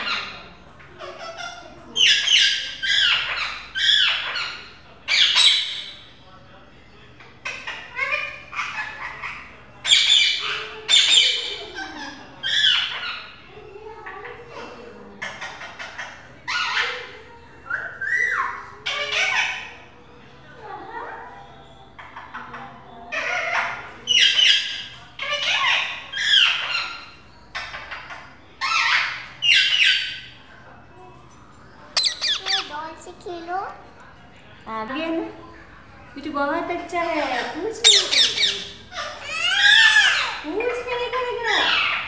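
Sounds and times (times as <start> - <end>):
parakeet calling: 0.0 - 6.1, 7.4 - 13.4, 15.2 - 19.9, 22.1 - 30.4, 31.9 - 33.4, 37.4 - 42.0.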